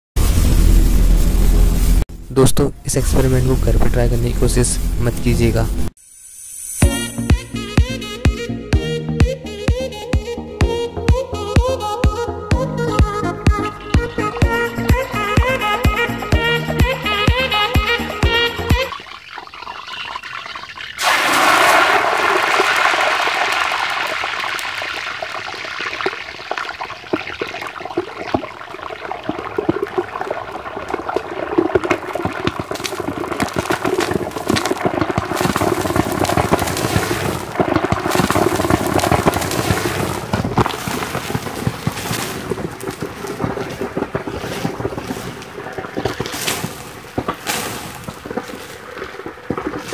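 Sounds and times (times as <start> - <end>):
hot oil sizzling and crackling: 0.2 - 2.1, 18.8 - 49.9.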